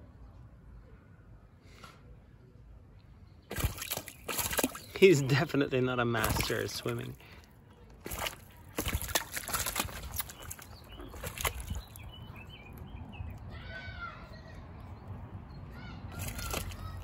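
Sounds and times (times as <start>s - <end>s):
wings flapping: 3.5s - 5.0s, 16.1s - 17.0s
bird splashing in water: 3.5s - 13.4s, 16.1s - 17.0s.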